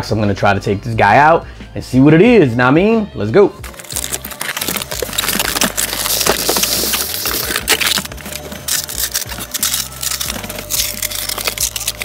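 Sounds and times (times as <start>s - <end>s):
cardboard and styrofoam handled: 3.7s - 12.0s.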